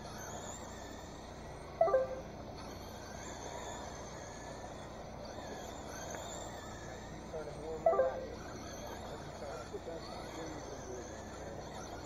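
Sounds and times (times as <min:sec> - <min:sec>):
rc car motors whining: 0:00.0 - 0:12.0
brief pitched sound: 0:01.8 - 0:02.3, 0:07.9 - 0:08.4.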